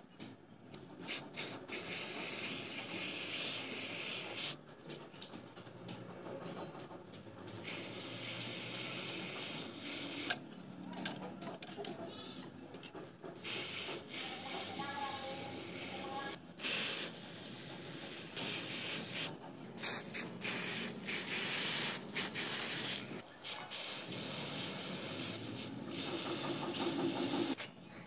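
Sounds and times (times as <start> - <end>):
spray paint can hissing: 1.0 - 4.6, 7.5 - 10.4, 13.4 - 27.6.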